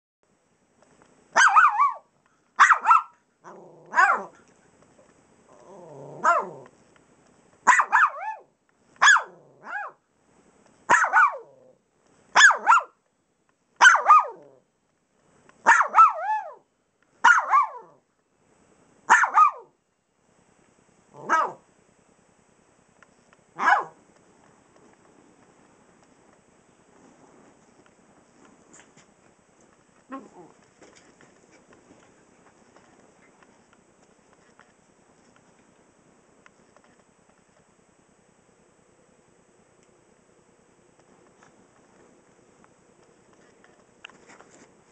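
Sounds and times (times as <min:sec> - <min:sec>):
small dog barking: 0:01.3 - 0:04.4, 0:06.0 - 0:06.7, 0:07.6 - 0:10.0, 0:10.9 - 0:13.0, 0:13.8 - 0:14.6, 0:15.6 - 0:18.0, 0:19.1 - 0:19.8, 0:21.1 - 0:21.6, 0:23.6 - 0:24.0, 0:30.1 - 0:30.6
dog growling: 0:03.4 - 0:04.4, 0:05.5 - 0:06.7, 0:09.3 - 0:09.8, 0:30.1 - 0:30.6.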